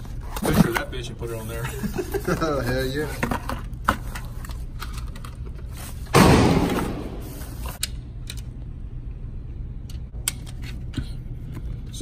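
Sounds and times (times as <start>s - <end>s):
gunshot echoing indoors: 6.1s - 7.2s.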